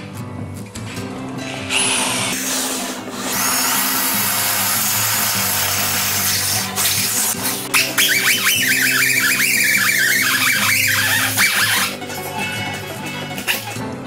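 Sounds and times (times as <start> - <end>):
background music: 0.0 - 14.0
cordless drill running: 2.4 - 6.8.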